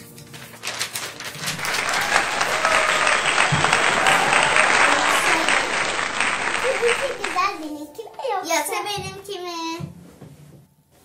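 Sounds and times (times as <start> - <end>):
crowd applause: 1.4 - 7.7.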